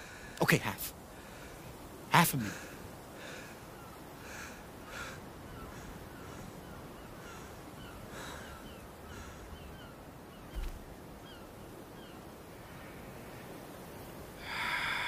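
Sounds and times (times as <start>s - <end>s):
steady outdoor hiss: 0.0s - 15.0s
crow-like caws: 2.5s - 10.9s
short falling bird chirps: 9.5s - 12.1s
dull low thump: 10.5s - 11.0s.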